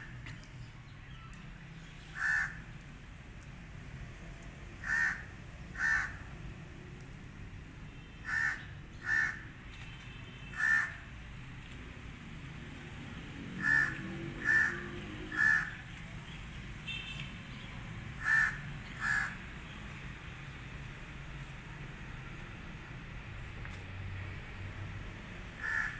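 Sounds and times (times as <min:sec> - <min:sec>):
bird making harsh calls: 0:02.1 - 0:02.6, 0:04.8 - 0:05.2, 0:08.2 - 0:09.4, 0:10.6 - 0:11.0, 0:13.6 - 0:15.8, 0:18.2 - 0:19.4, 0:25.6 - 0:25.9.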